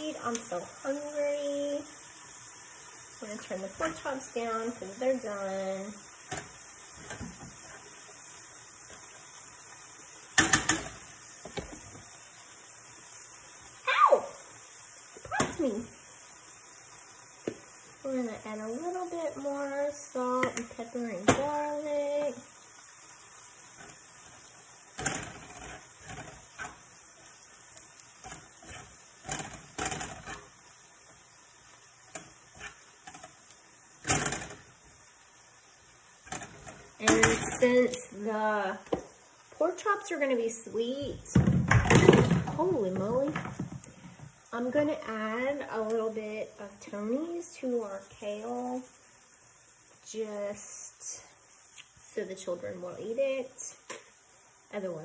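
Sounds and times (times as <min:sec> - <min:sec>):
meat sizzling in a skillet: 0:00.0 - 0:55.0
metal utensils clattering on pan: 0:06.3 - 0:07.4, 0:10.4 - 0:11.0, 0:25.0 - 0:26.8, 0:28.2 - 0:30.6, 0:32.1 - 0:33.4, 0:34.0 - 0:34.7, 0:36.3 - 0:37.8.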